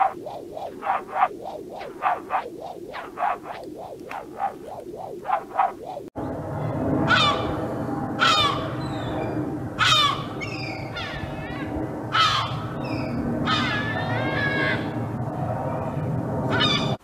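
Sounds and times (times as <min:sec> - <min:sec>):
gulls calling: 0:00.0 - 0:06.1
steady background rush: 0:00.0 - 0:17.0.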